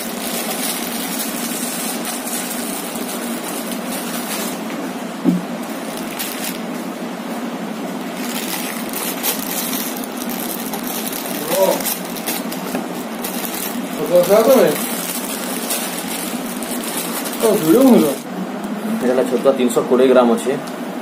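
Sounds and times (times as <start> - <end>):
food packets crinkling: 0.0 - 4.7, 5.6 - 6.8, 8.0 - 18.2.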